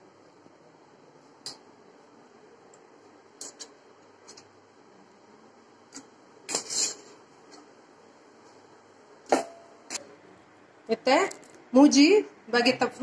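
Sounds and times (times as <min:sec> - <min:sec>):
metal spatula scraping steel plate: 0:06.5 - 0:07.2.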